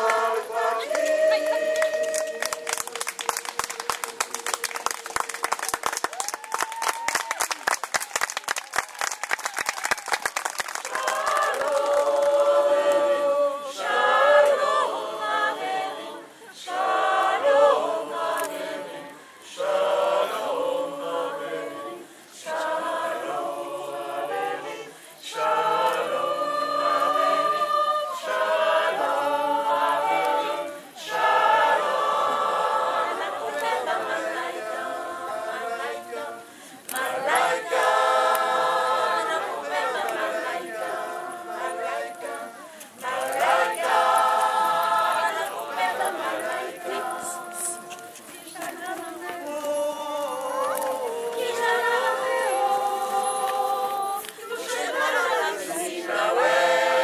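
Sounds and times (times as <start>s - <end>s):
mixed choir singing a cappella: 0.0s - 5.6s, 10.8s - 57.0s
audience applause: 0.0s - 13.4s.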